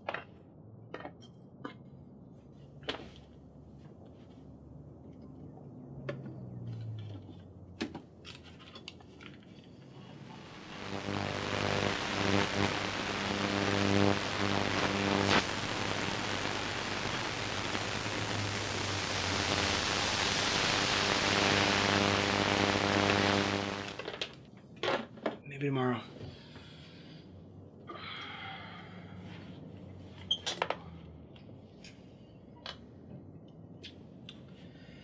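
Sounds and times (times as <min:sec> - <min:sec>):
low electrical buzz: 0:09.7 - 0:24.2
static hiss: 0:09.7 - 0:24.3.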